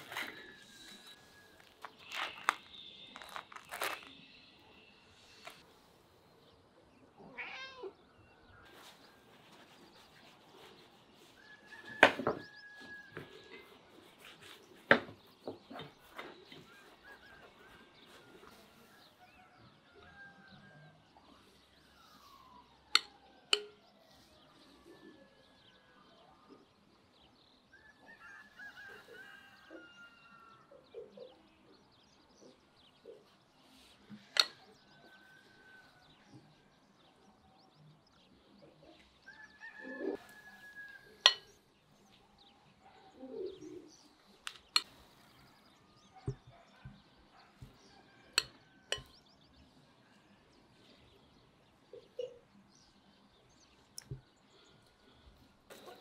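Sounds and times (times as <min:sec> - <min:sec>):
cat meowing: 0:07.3 - 0:08.0.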